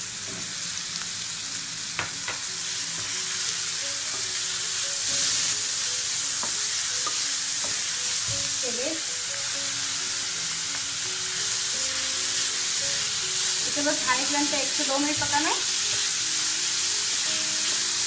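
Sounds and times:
vegetables sizzling in oil: 0:00.0 - 0:18.0.

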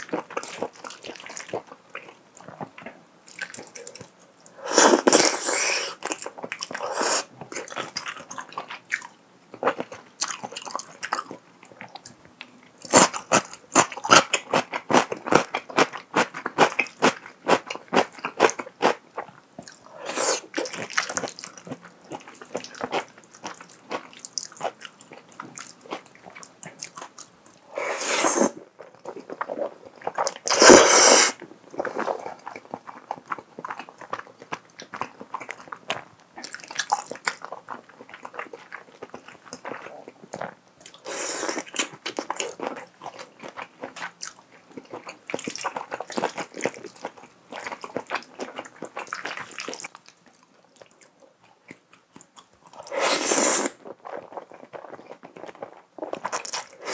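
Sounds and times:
slurping noodles: 0:04.6 - 0:06.0, 0:06.8 - 0:07.3, 0:27.7 - 0:28.6, 0:30.5 - 0:32.2, 0:41.0 - 0:41.7, 0:52.8 - 0:54.2
wet chewing with smacking: 0:31.7 - 0:53.0, 0:53.6 - 0:56.9.

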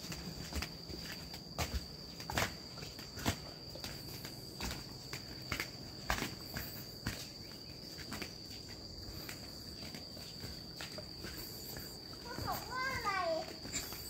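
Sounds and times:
footsteps on forest trail: 0:00.0 - 0:14.0.

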